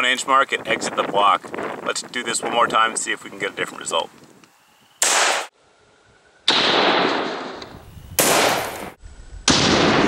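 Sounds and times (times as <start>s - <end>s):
rifle shots with ringing echo: 5.0s - 5.5s, 6.5s - 7.6s, 8.2s - 10.0s.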